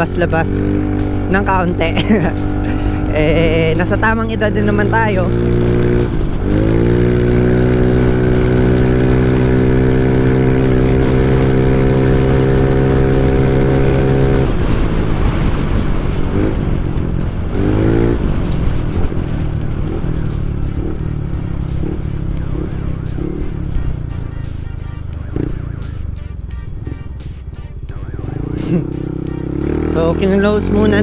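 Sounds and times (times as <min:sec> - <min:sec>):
scooter engine drone and revs: 0:00.0 - 0:31.0
wind noise on microphone: 0:13.1 - 0:20.2.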